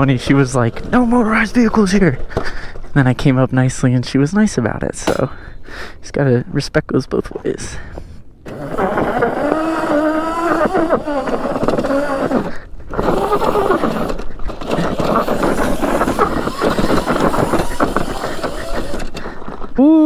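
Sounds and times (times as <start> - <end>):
electric motor whining: 8.5 - 19.3
wheel spraying dirt and gravel: 8.6 - 19.2.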